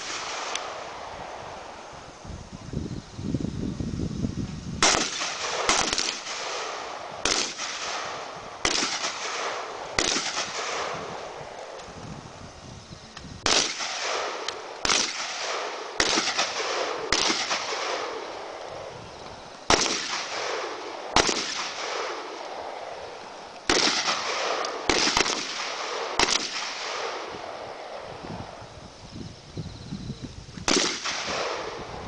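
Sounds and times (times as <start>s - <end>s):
rifle shots with echo: 0.0s - 1.5s, 4.8s - 11.8s, 13.4s - 18.7s, 19.7s - 23.1s, 23.7s - 28.1s, 30.7s - 32.0s.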